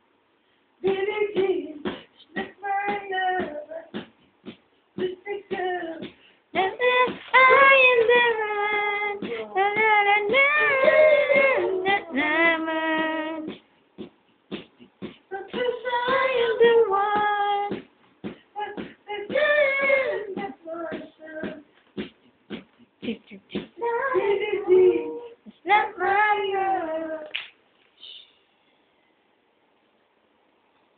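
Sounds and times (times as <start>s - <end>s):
person singing unaccompanied: 0.8s - 4.0s, 5.0s - 13.6s, 15.2s - 17.8s, 18.5s - 21.7s, 23.0s - 27.3s.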